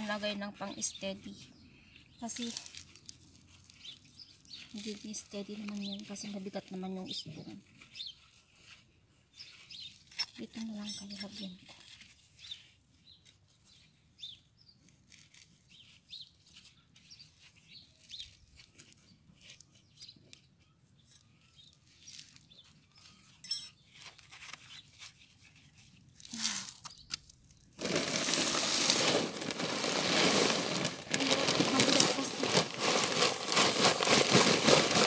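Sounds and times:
gravel stones clicking: 26.2s - 35.0s
plastic sack crinkling: 27.5s - 35.0s.

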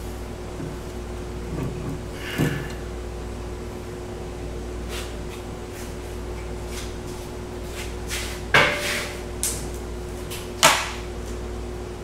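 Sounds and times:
air conditioner buzzing: 0.0s - 12.0s
loud metal clunks: 1.5s - 2.8s.

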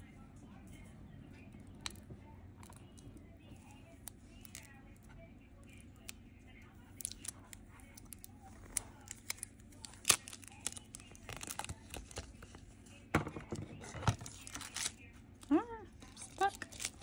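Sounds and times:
plastic tape crinkling and crackling: 6.9s - 13.0s, 13.8s - 17.0s.

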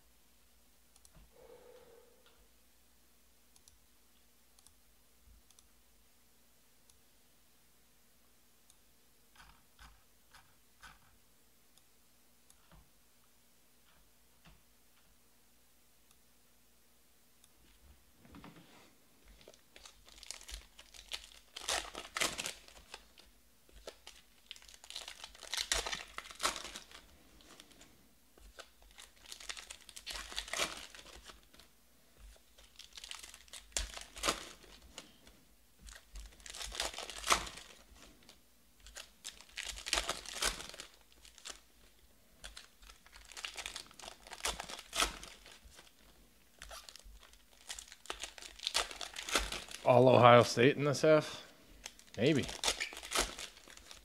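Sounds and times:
plastic wrappers crinkling and tearing: 19.2s - 50.0s, 51.7s - 54.0s.

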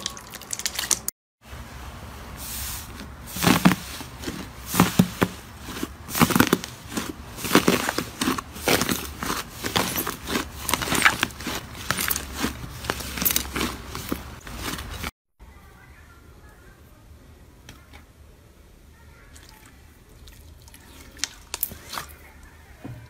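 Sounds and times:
hands squeezing fluffy slime: 2.4s - 15.1s.

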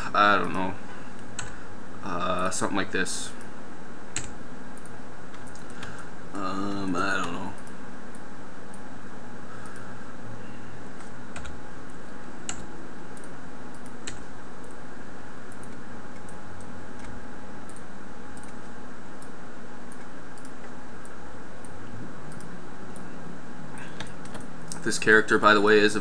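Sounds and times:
background hum and hiss: 0.0s - 26.0s
keyboard and mouse clicks: 12.5s - 14.2s, 24.0s - 24.9s.

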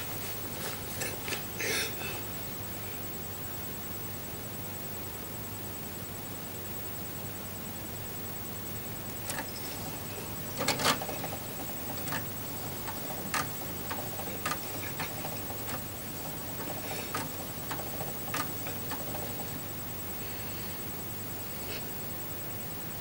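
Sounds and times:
faint steady hum: 0.0s - 23.0s
disc tray clicks: 9.2s - 19.8s.

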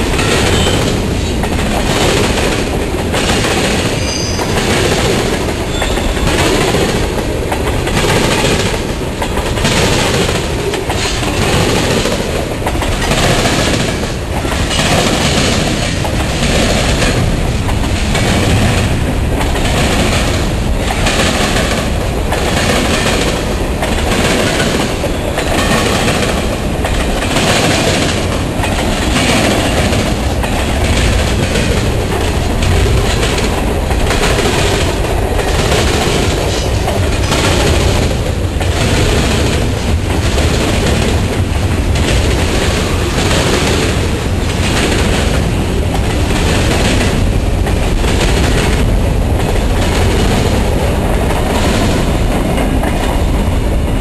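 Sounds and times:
wheels clicking over rail joints: 0.0s - 53.6s
freight train rolling past: 0.0s - 54.0s.

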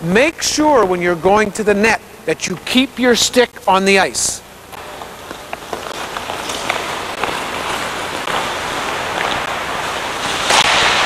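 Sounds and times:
hockey sticks striking puck: 5.0s - 11.0s
skate blades scraping on ice: 5.3s - 11.0s.

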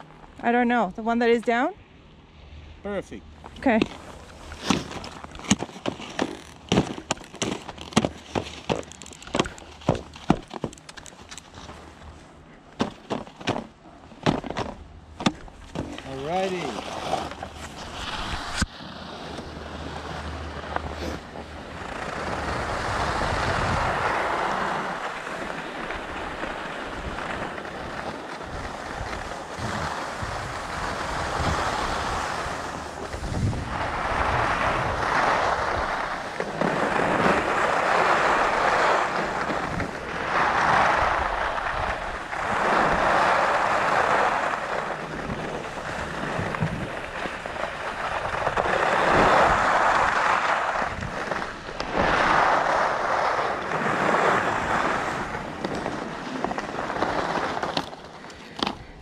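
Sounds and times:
skis scraping over snow: 3.5s - 59.0s
wind buffeting microphone: 19.5s - 56.3s.

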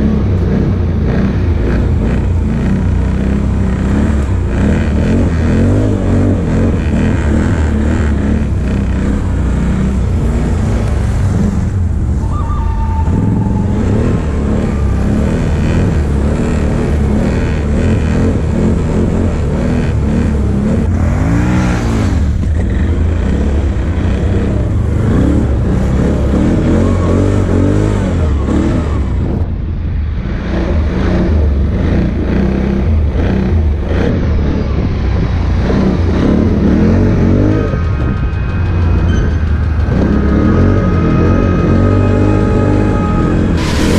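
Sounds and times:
atv engine revving: 0.0s - 43.9s.

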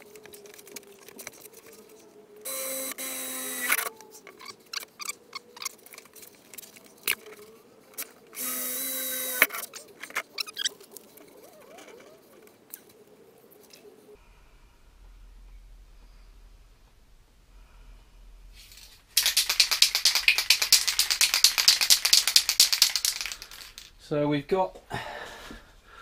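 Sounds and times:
power drill drilling: 2.5s - 3.8s, 8.4s - 9.5s.

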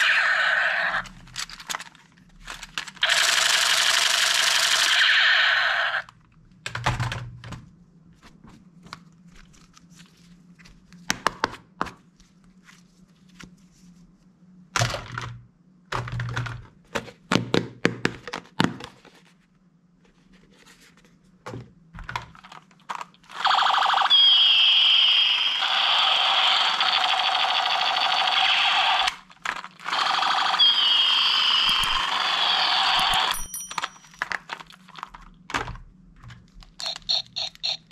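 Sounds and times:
toy gun electronic sound effect: 0.0s - 1.1s, 3.0s - 6.1s, 23.3s - 29.2s, 29.8s - 33.5s, 36.8s - 37.9s.

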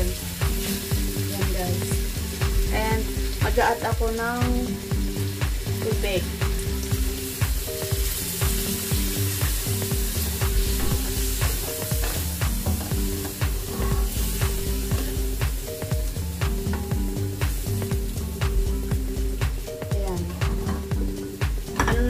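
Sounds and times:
curry sizzling in a metal pan: 0.0s - 22.0s
spatula scraping a pan: 10.8s - 15.3s.

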